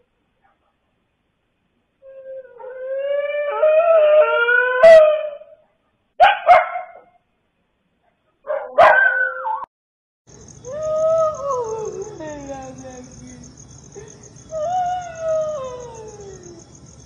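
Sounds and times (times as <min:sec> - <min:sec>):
dogs howling: 0:02.1 - 0:05.6, 0:14.5 - 0:16.8
dog barking: 0:06.2 - 0:07.2, 0:08.4 - 0:09.7.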